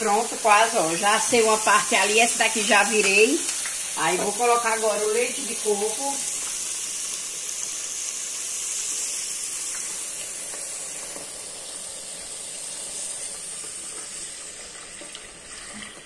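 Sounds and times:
vegetables sizzling in hot oil: 0.0s - 16.0s.

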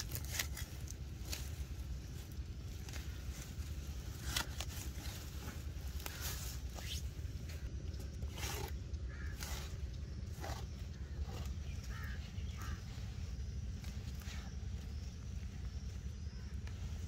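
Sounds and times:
crow cawing: 9.1s - 9.8s, 11.8s - 12.9s.

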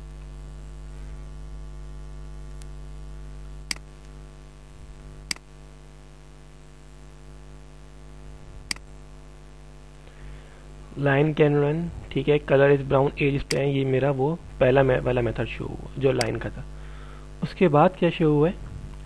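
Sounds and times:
electrical mains hum: 0.0s - 19.0s
computer mouse clicks: 3.7s - 3.9s, 5.3s - 5.5s, 8.7s - 8.9s.

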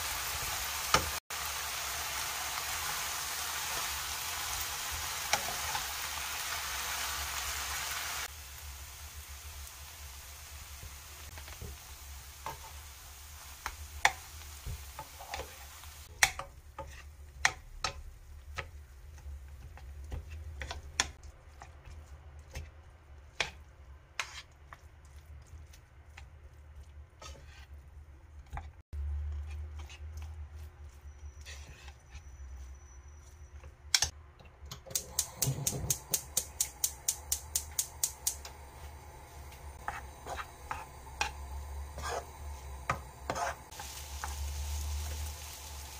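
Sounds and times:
utensils scraping frying pan: 4.9s - 6.0s, 12.3s - 34.2s, 39.8s - 45.9s.

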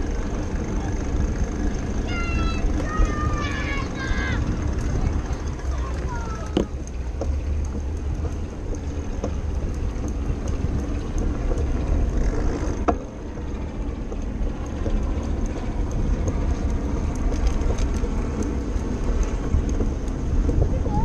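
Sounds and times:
bicycle rolling on wooden boardwalk: 0.0s - 21.0s
light clicks and rattles: 0.0s - 21.0s
wind on microphone: 14.5s - 21.0s.

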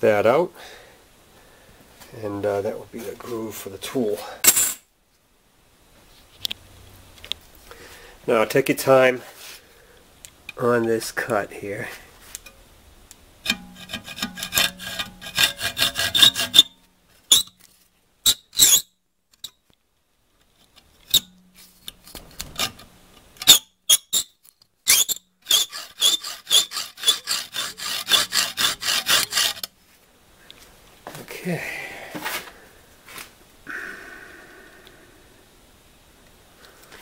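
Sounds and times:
hacksaw cutting metal: 13.4s - 17.4s, 24.9s - 29.7s.

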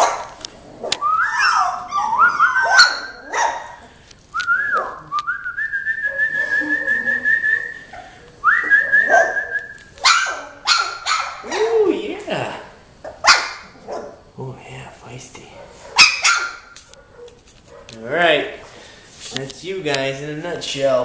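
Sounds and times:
puppies yipping and barking: 0.0s - 4.0s, 4.6s - 11.9s, 13.0s - 14.3s, 15.7s - 18.0s
puppies whining: 0.0s - 12.2s, 15.8s - 18.0s.

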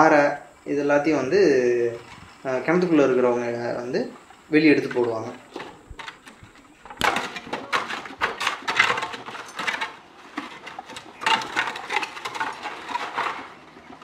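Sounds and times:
tools striking rock and gravel: 7.0s - 13.9s.

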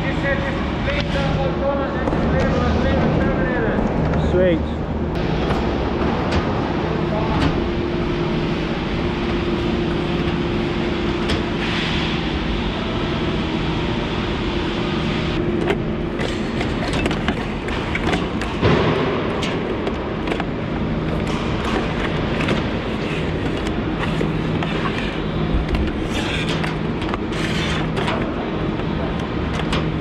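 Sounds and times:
industrial machinery drone: 0.0s - 30.0s.

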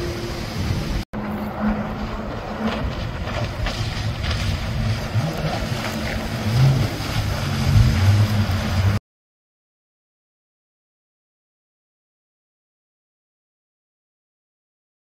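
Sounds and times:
jet ski engine running: 0.0s - 9.0s.

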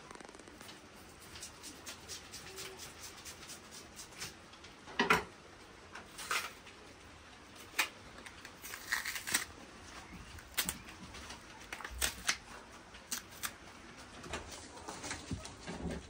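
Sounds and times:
plantain skin scraping and snapping: 7.7s - 9.6s, 11.6s - 12.4s, 13.0s - 13.6s.

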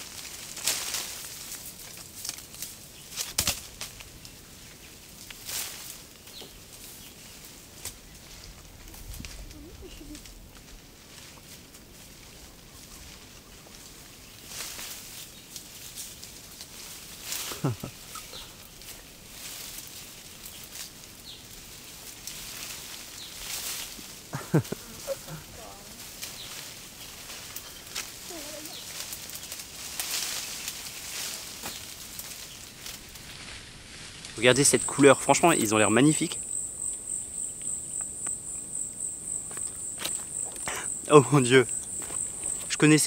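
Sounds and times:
twigs snapping: 0.0s - 7.0s, 7.7s - 11.9s, 12.9s - 34.4s
leafy branches rustling: 0.0s - 43.0s
outdoor hiss: 0.0s - 43.0s.

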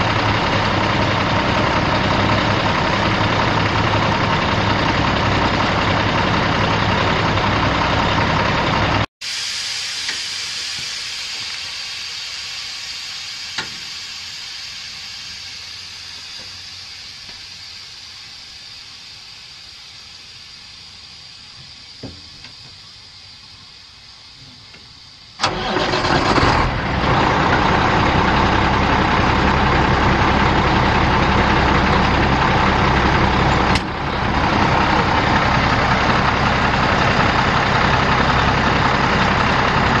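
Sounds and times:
diesel truck engine cranking: 0.0s - 9.1s, 25.4s - 40.0s
diesel engine idling: 0.0s - 40.0s.

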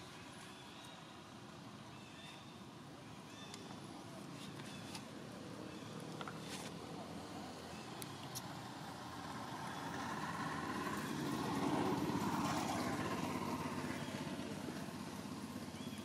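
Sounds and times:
vehicle engine passing by: 6.8s - 16.0s.

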